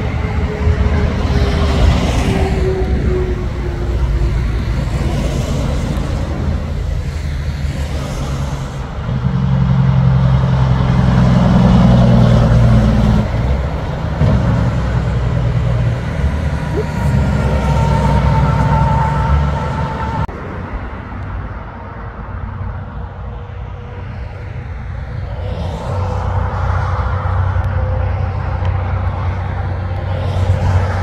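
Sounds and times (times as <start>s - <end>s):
truck diesel engine droning: 0.0s - 20.8s
heavy trucks and cars passing: 0.0s - 31.0s
falling whine of passing vehicle: 8.0s - 20.6s.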